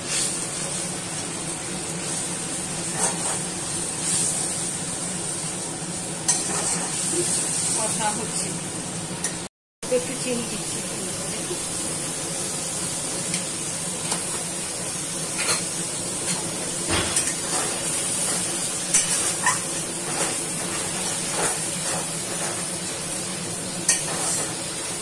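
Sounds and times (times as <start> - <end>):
masala sizzling in hot oil: 0.0 - 25.0
metal spatula scraping pan: 2.8 - 4.3, 6.3 - 7.4.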